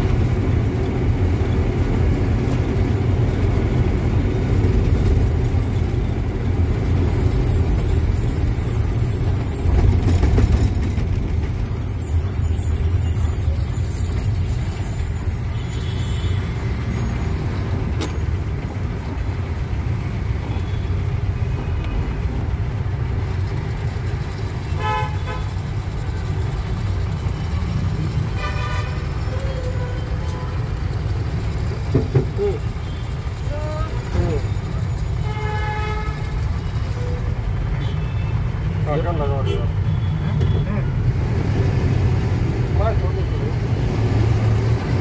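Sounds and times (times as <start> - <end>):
road noise: 0.0 - 45.0
truck engine rumble: 0.0 - 45.0
horn honking: 24.8 - 25.6, 28.2 - 30.7, 35.2 - 38.4.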